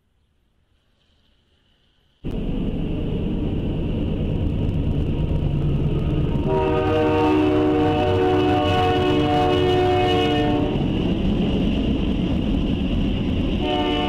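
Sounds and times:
diesel locomotive rumble: 0:02.2 - 0:14.0
train air horn chord: 0:06.4 - 0:10.8, 0:13.6 - 0:14.0.

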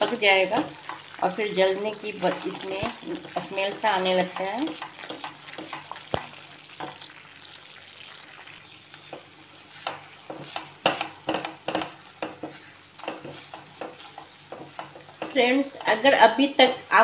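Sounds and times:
spatula scraping a pan: 0:01.9 - 0:07.1, 0:08.6 - 0:16.3.

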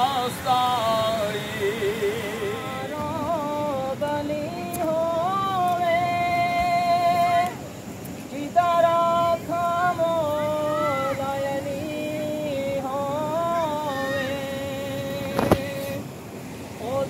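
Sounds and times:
person singing devotional melody: 0:00.0 - 0:17.0.

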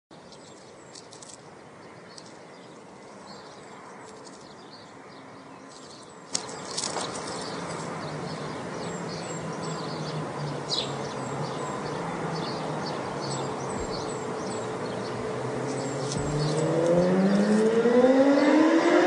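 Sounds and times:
birds chirping: 0:00.1 - 0:19.0
road traffic noise: 0:00.1 - 0:19.0
low engine hum: 0:06.1 - 0:19.0.

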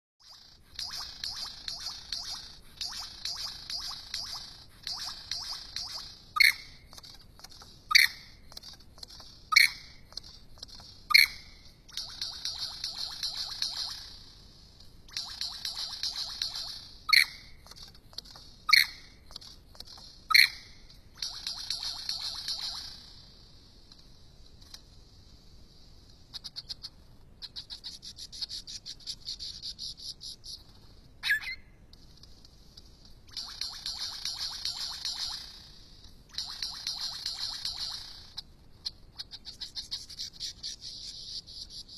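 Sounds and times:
lyrebird clicking song: 0:00.2 - 0:14.2, 0:15.0 - 0:23.2, 0:26.3 - 0:41.9
lyrebird sharp calls: 0:31.2 - 0:31.6.

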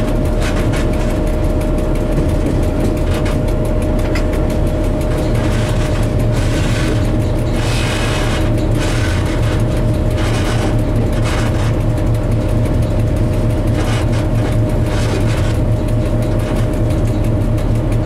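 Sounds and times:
locomotive engine hum and whine: 0:00.0 - 0:18.0
wheels rushing on track: 0:00.0 - 0:18.0.

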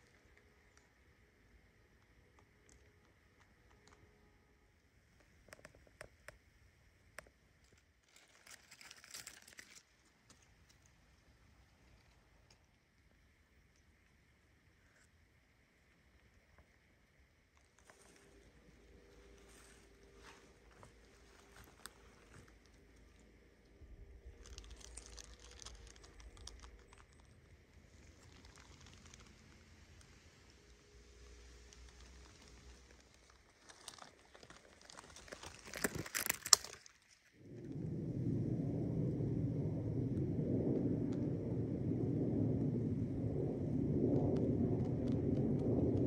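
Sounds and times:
crinkly rustle of leaves: 0:00.0 - 0:46.0
low rumble: 0:17.8 - 0:36.5, 0:37.4 - 0:46.0
footsteps crunching on twigs: 0:33.6 - 0:36.8.

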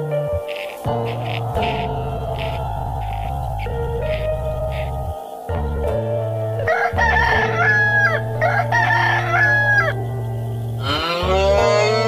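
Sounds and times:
rooster crowing: 0:00.5 - 0:05.8, 0:06.6 - 0:10.0
cow mooing: 0:10.8 - 0:12.0.

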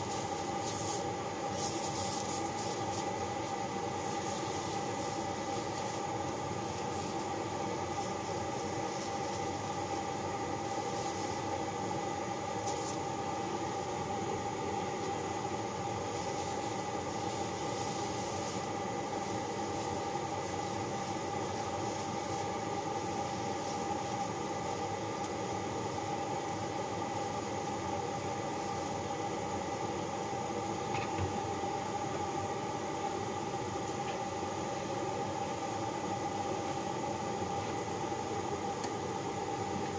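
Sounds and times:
gas torch hissing: 0:00.0 - 0:31.9.

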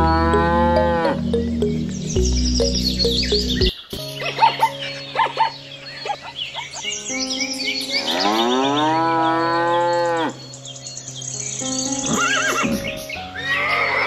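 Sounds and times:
cow mooing: 0:00.0 - 0:01.3, 0:08.1 - 0:10.4
background music: 0:00.0 - 0:14.0.

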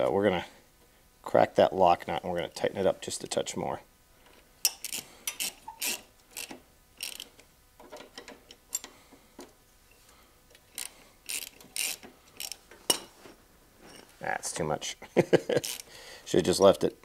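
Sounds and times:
ratchet wrench clicking: 0:04.6 - 0:07.4, 0:10.7 - 0:12.6, 0:15.6 - 0:15.9.

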